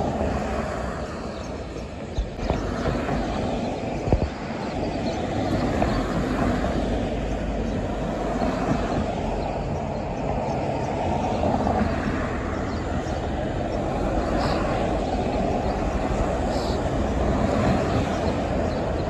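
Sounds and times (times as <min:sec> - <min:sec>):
bus running: 0:00.0 - 0:19.0
street traffic: 0:00.0 - 0:19.0.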